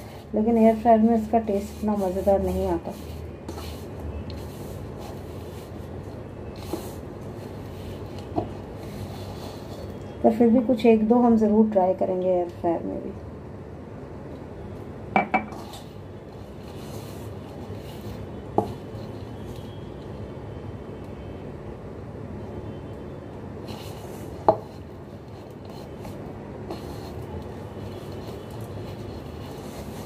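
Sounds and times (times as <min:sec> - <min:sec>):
hands kneading dough: 0:00.0 - 0:10.1, 0:15.5 - 0:19.8, 0:23.6 - 0:30.0
glass knocking on counter: 0:15.2 - 0:15.5.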